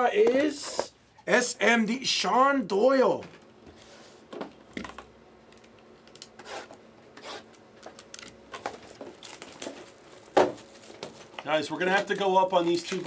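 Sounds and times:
plastic wrap rustling and tearing: 6.5 - 13.0.

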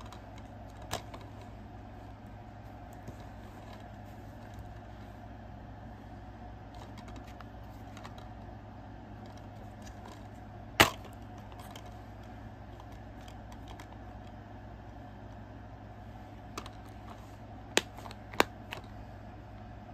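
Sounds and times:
steady low hum: 0.0 - 19.9
plastic case handling: 6.7 - 8.3, 16.4 - 19.0.

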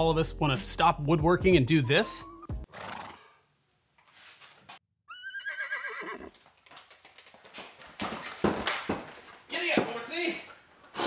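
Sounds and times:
horse whinnying: 2.7 - 3.4, 5.1 - 6.4.

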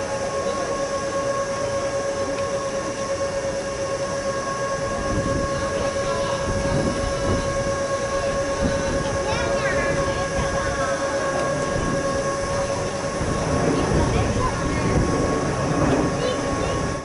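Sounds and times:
steady electrical whine: 0.0 - 17.0
low rumble: 4.8 - 17.0.

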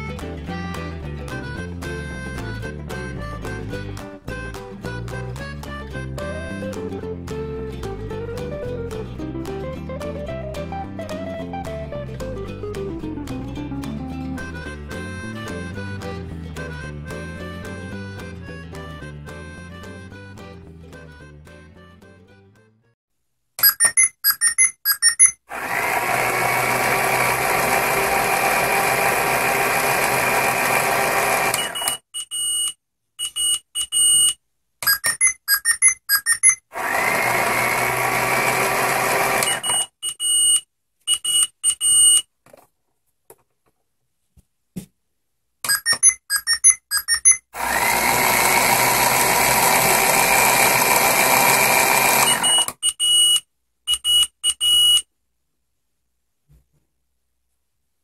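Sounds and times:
short electronic beeps: 23.6 - 25.4, 31.6 - 36.7, 39.5 - 42.2, 45.7 - 47.5, 52.3 - 55.1
toy motor humming and whining: 23.7 - 32.0, 34.9 - 39.9, 45.7 - 52.8.

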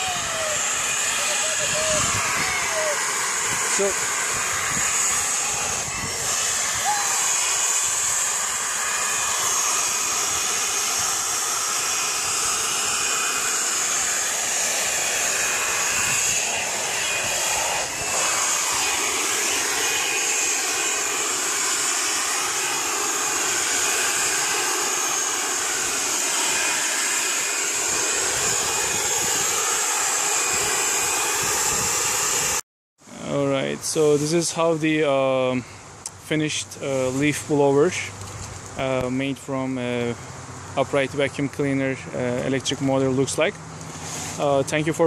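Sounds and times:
vacuum motor whine and air rush: 0.0 - 45.0.

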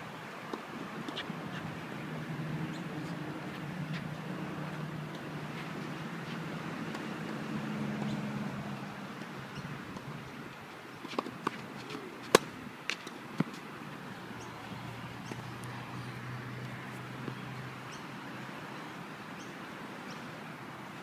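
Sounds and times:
tennis ball bouncing: 4.7 - 7.4, 11.0 - 13.6, 16.6 - 17.4
tennis racquet hitting ball: 11.1 - 13.6.

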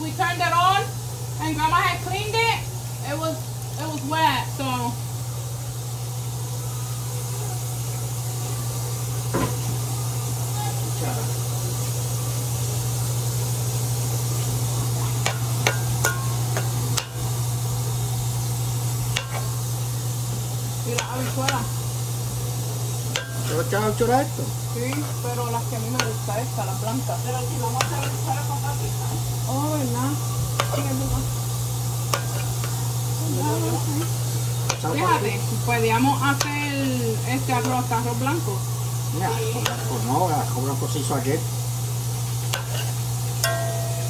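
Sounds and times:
sausage sizzling in sauce: 0.0 - 44.0
steady low hum: 0.0 - 44.0
metal spoon scraping a pot: 42.5 - 43.0.

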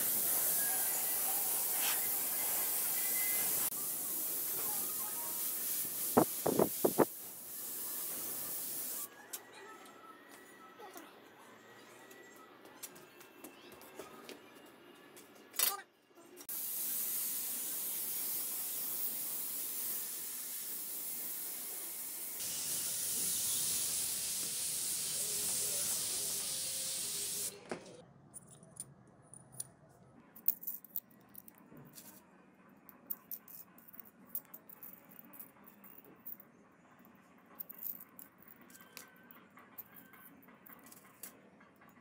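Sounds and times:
paint spray gun hissing: 0.0 - 9.1, 16.5 - 27.6.

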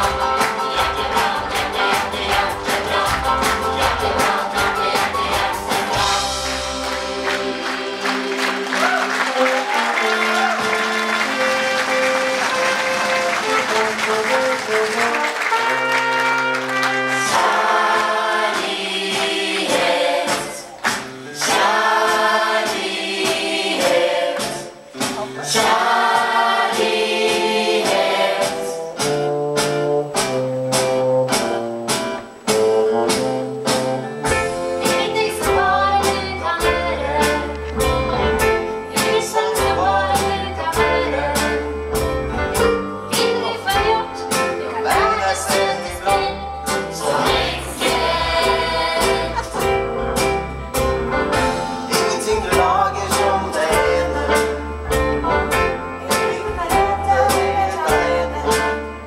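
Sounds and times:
drum beat: 0.0 - 9.2
choir singing: 0.0 - 14.7, 16.9 - 29.0, 34.7 - 42.0, 43.1 - 59.0
audience applause: 0.0 - 18.5
live band playing: 0.0 - 59.0
bass line: 39.6 - 59.0.

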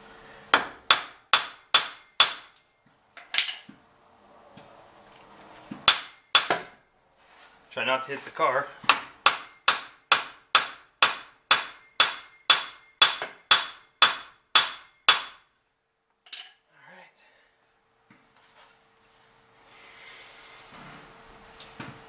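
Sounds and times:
hammer striking metal: 0.5 - 3.6, 5.8 - 7.2, 8.8 - 15.7, 16.3 - 16.6.

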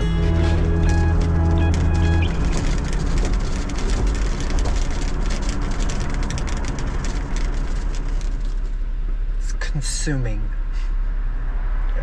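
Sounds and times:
road noise rumble inside car: 0.0 - 12.0.

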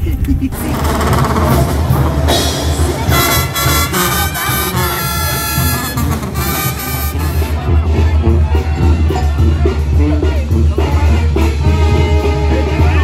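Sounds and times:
steady bass: 0.0 - 13.0
trumpets holding notes: 0.6 - 8.0.

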